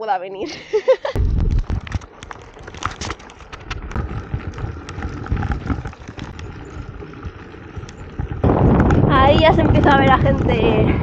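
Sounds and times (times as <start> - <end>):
bike knocks and rattles: 1.2 - 11.0
bike tyres crunching on gravel: 1.2 - 11.0
low rumble: 3.7 - 11.0.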